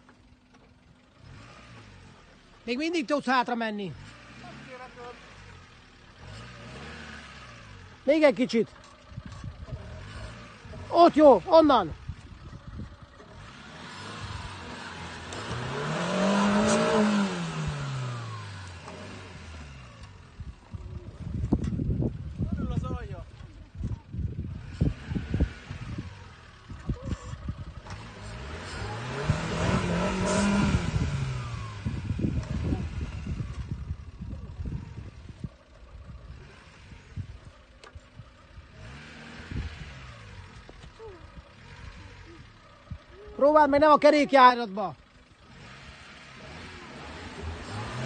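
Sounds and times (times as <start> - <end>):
car engine revving: 0.0 - 48.0.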